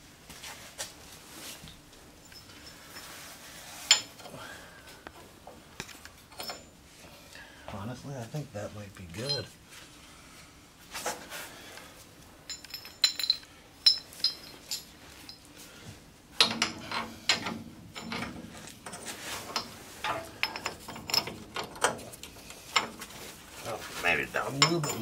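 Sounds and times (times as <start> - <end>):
metal tools clinking: 2.2 - 3.2, 3.8 - 4.4, 6.3 - 6.8, 9.2 - 9.6, 12.4 - 15.5, 16.4 - 25.0
metal parts rattling and scraping: 2.2 - 4.4, 5.9 - 6.8, 12.4 - 15.5, 16.4 - 25.0.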